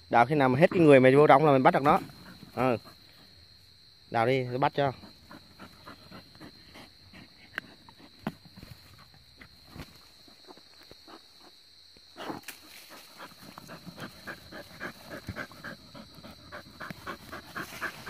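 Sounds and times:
dog panting: 0:05.0 - 0:08.2, 0:13.1 - 0:18.0.

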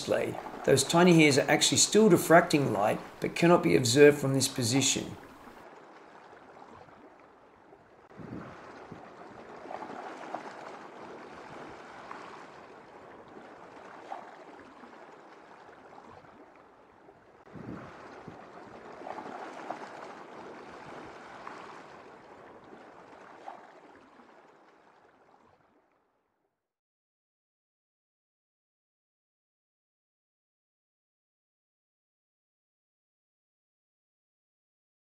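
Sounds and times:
underwater sea sloshing: 0:00.0 - 0:26.0.

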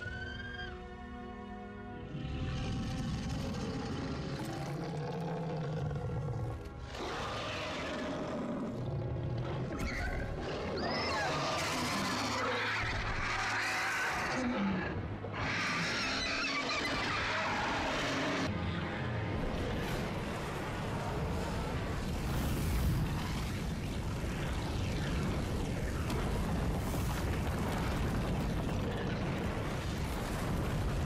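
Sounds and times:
film score music: 0:00.0 - 0:31.0
deep dragon roars: 0:02.1 - 0:09.7.

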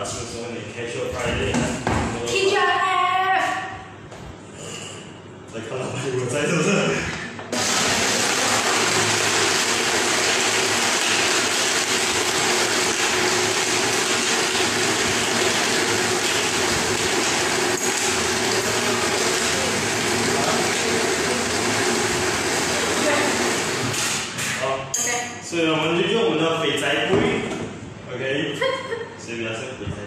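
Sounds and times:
blender crushing ice: 0:07.5 - 0:24.4.

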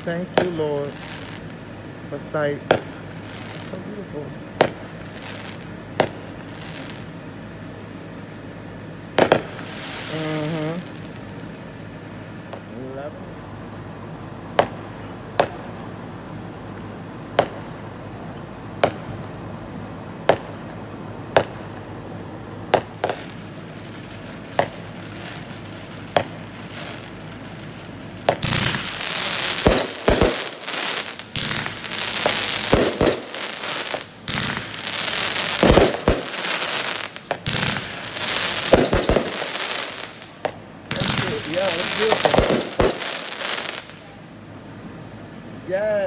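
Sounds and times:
crackling fireworks: 0:00.0 - 0:46.0
firework bangs: 0:00.0 - 0:46.0
deep firework thumps: 0:04.6 - 0:06.8, 0:09.2 - 0:10.0, 0:14.5 - 0:15.8, 0:17.3 - 0:17.8, 0:18.7 - 0:19.3, 0:20.2 - 0:21.9, 0:24.5 - 0:25.2, 0:28.2 - 0:43.4.

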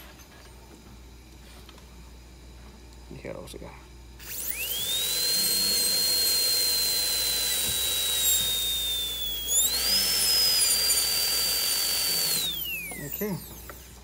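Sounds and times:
dental drill whining: 0:04.2 - 0:14.0.

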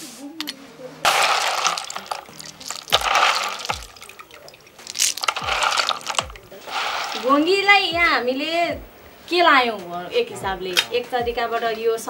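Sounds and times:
water sloshing and splashing in basin: 0:01.1 - 0:07.5.

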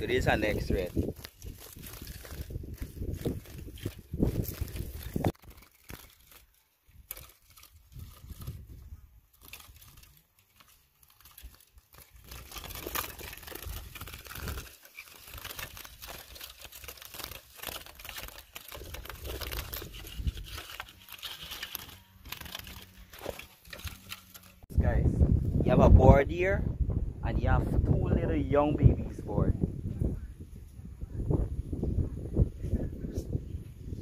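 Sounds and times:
rustling and crinkling: 0:00.0 - 0:24.7.

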